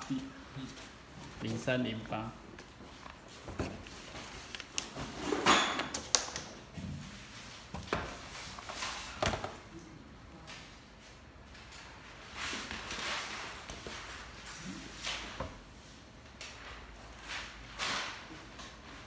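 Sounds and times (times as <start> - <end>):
paper rustling: 0.2 - 5.3.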